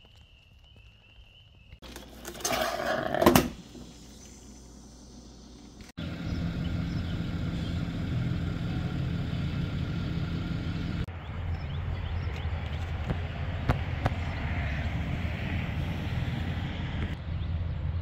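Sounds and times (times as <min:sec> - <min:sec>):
pickup truck engine idling: 0:06.0 - 0:11.7.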